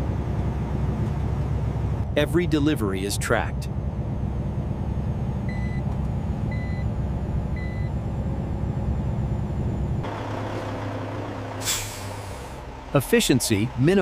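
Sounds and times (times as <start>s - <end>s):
truck engine rumble: 0.0s - 14.0s
short electronic beeps: 5.5s - 5.9s, 6.5s - 6.9s, 7.6s - 8.0s.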